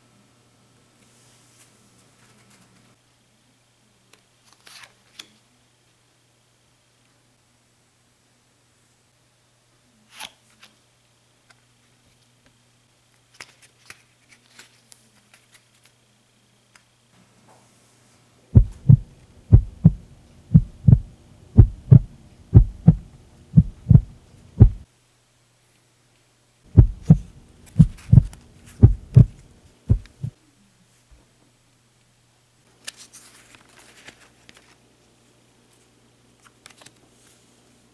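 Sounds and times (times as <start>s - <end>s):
faint steady hum: 5.2s - 37.9s
heartbeat thumps: 18.6s - 24.8s, 26.7s - 30.4s.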